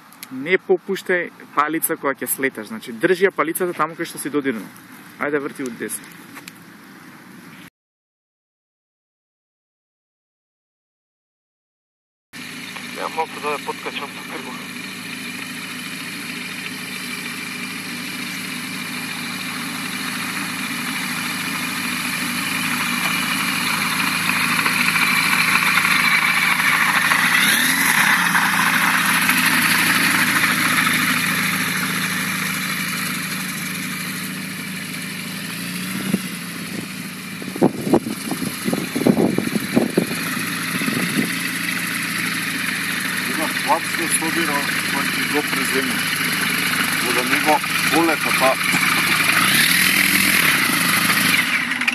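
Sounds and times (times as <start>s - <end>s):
aircraft engine and propeller: 12.4s - 51.9s.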